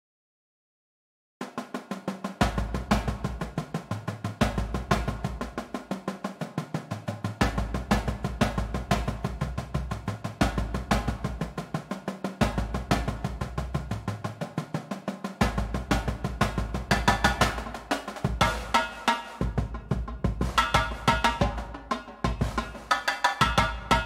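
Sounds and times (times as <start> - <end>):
marching snare drums: 1.4 - 24.0
tenor drums: 1.4 - 24.0
bass drum notes: 2.4 - 5.8, 7.4 - 11.8, 12.4 - 14.2, 15.4 - 18.8, 19.4 - 24.0.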